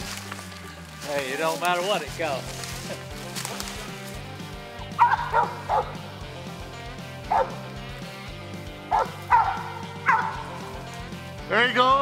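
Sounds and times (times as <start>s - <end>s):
background music with held tones: 0.0s - 12.0s
dog barking: 4.9s - 6.0s, 7.2s - 7.6s, 8.9s - 10.6s.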